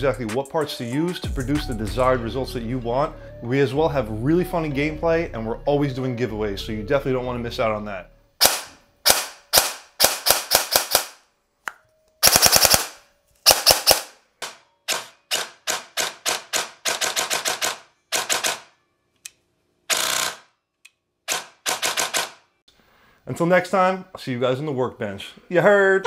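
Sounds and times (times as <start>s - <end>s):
airsoft gun firing: 8.4s - 11.2s, 12.2s - 14.2s, 21.3s - 22.4s.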